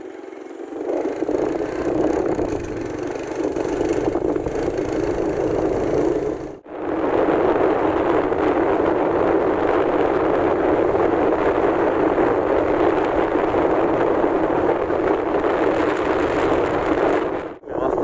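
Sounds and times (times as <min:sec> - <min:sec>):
vehicle in motion rushing: 0:00.0 - 0:09.1
wind on microphone: 0:00.6 - 0:18.0.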